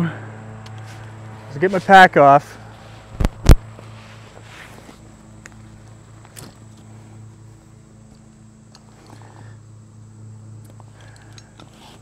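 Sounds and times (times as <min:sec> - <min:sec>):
steady low hum: 0:00.0 - 0:12.0
backpack rustling: 0:02.7 - 0:06.7.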